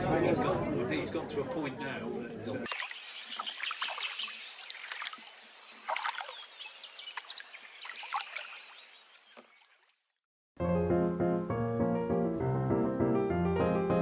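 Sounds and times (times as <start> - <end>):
water splashing: 2.6 - 10.2.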